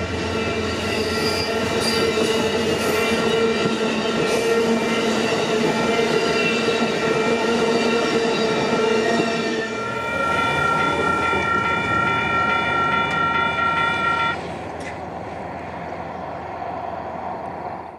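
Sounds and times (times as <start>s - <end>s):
train running on rails: 0.0s - 17.9s
steady high tone: 4.6s - 14.4s.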